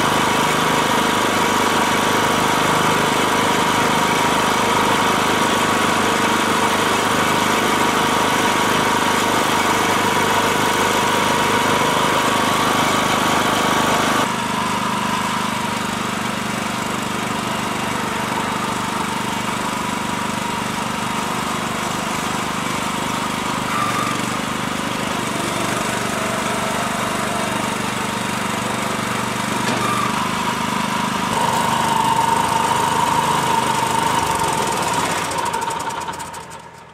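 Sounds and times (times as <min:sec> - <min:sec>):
small petrol engine running: 0:00.0 - 0:36.9.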